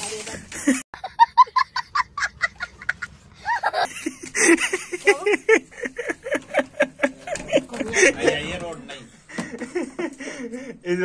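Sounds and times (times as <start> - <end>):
child laughing hysterically: 1.0 - 7.1.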